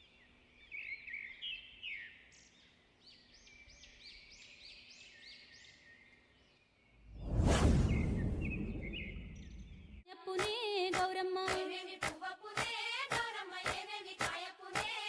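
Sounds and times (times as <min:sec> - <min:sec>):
bird chirps: 0:00.0 - 0:10.0
deep rumble: 0:07.1 - 0:10.0
loud whoosh: 0:07.1 - 0:10.0.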